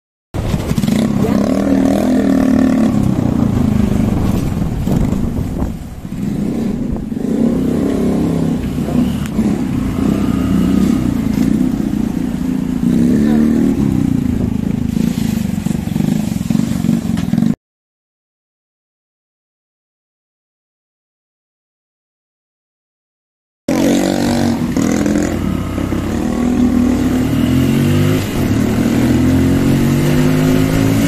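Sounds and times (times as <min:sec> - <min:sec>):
motorbike engines revving: 0:00.4 - 0:17.6, 0:23.7 - 0:31.0.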